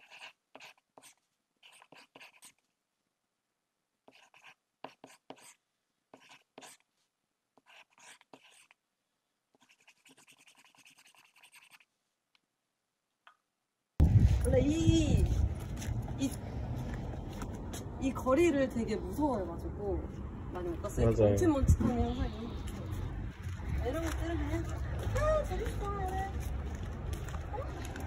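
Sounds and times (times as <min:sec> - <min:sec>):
pen scratching on paper: 0:00.0 - 0:02.6, 0:04.0 - 0:06.9, 0:07.6 - 0:08.8, 0:09.5 - 0:11.9.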